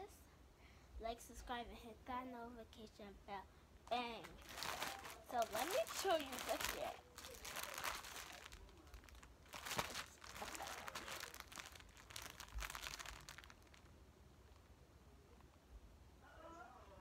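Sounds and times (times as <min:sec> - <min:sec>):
plastic packaging crinkling: 0:03.9 - 0:13.9.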